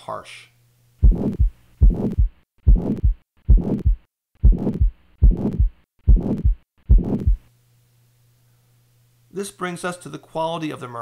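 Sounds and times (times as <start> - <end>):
harsh heart murmur: 1.0 - 7.5
heartbeat thumps: 1.0 - 7.5.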